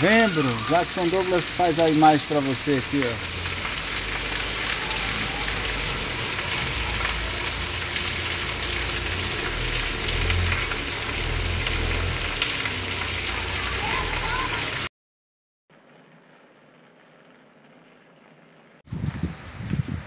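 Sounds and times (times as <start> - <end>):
heavy rain on pavement: 0.0 - 14.9, 18.9 - 20.0.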